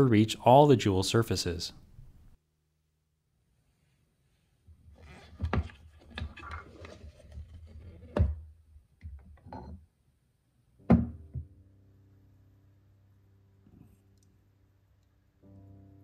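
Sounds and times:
background music: 10.8s - 16.0s.

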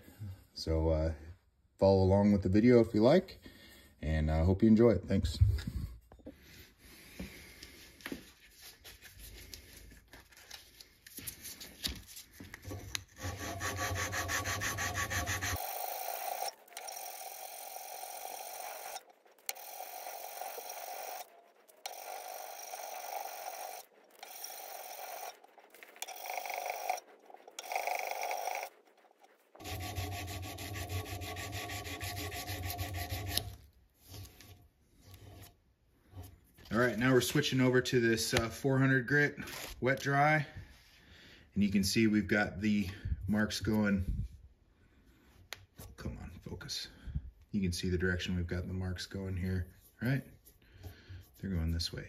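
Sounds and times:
abrasive paper rubbing on steel: 8.2s - 15.6s, 17.8s - 37.6s.

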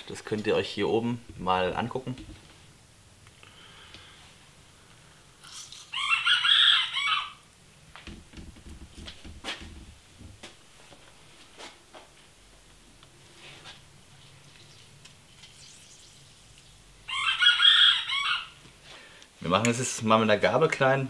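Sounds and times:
rooster crowing: 5.9s - 7.4s, 17.1s - 18.6s.

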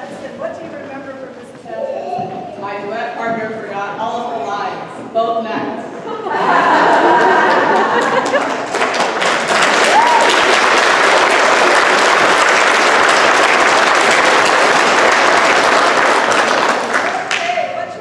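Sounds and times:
applause in a hall: 6.7s - 18.0s.

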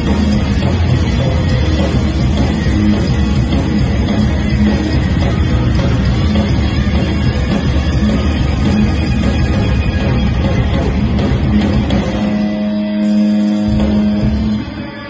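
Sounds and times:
drum kit: 0.0s - 15.0s
electric guitar: 0.0s - 15.0s.

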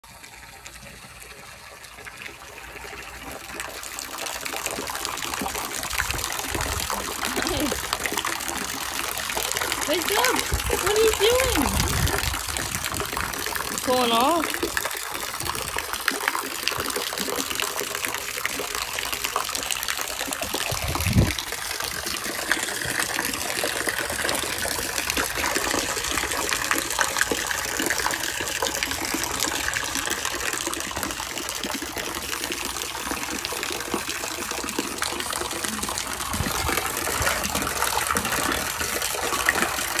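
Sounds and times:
water gushing in metal tank: 0.0s - 40.0s.

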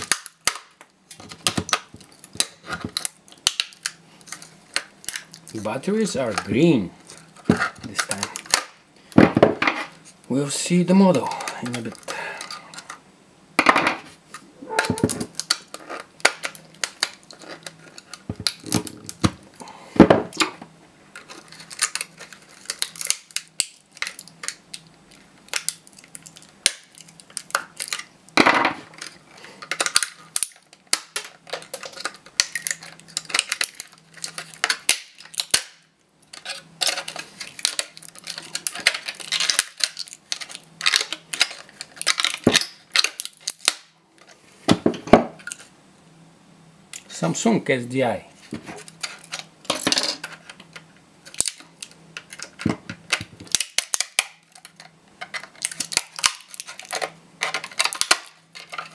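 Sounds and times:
plastic casing cracking and snapping: 0.0s - 5.6s, 6.3s - 8.8s, 15.0s - 19.4s, 20.3s - 28.1s, 28.9s - 44.0s, 48.8s - 58.9s.

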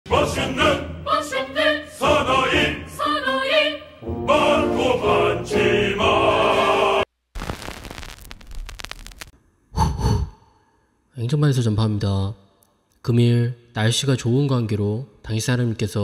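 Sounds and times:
operatic choral singing: 0.1s - 7.1s.

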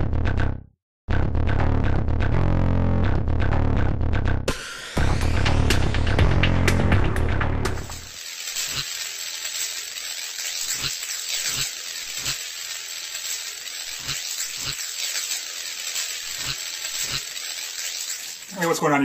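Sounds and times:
hissing static: 7.8s - 19.0s.

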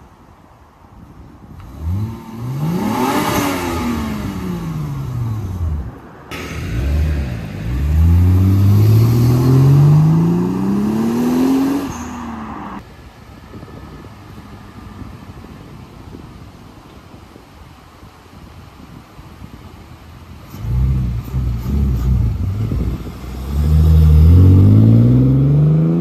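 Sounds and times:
car engine revving: 1.6s - 12.8s, 20.5s - 26.0s.

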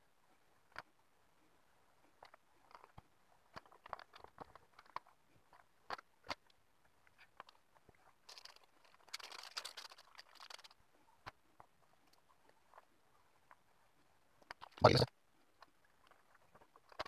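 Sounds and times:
plastic packet crinkling: 8.3s - 10.8s.

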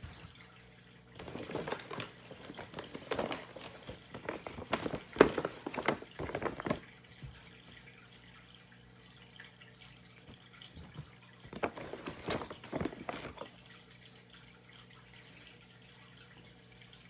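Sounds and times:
paper crinkling and rustling: 1.2s - 6.9s, 11.5s - 13.5s.

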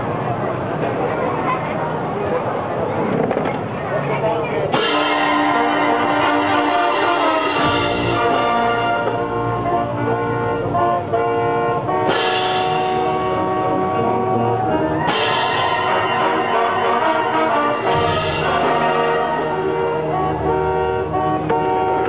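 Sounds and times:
concert band sustained chords: 4.7s - 22.0s.

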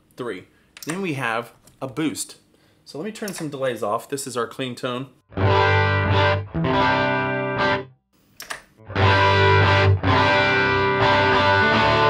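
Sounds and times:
electric guitar chords strummed: 5.3s - 8.0s, 8.8s - 12.0s.

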